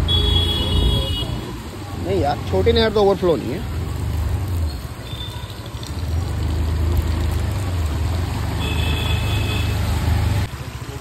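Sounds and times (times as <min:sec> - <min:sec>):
tyres running through water: 0:00.0 - 0:11.0.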